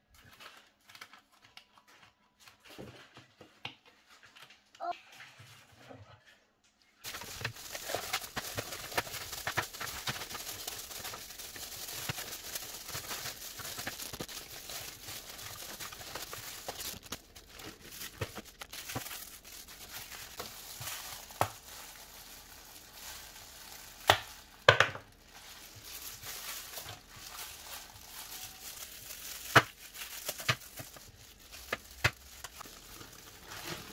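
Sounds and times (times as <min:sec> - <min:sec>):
plastic bag and gloves crinkling: 0:00.0 - 0:03.4, 0:07.0 - 0:33.9
ice cubes cracking from tray: 0:27.9 - 0:33.9.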